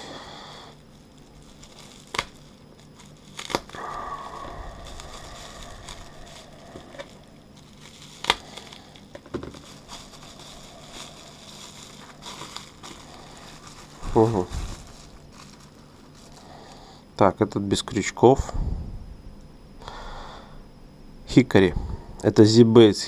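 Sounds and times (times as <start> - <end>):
bubble wrap crinkling: 0.0 - 16.8
bubble wrap snapping: 0.7 - 16.6.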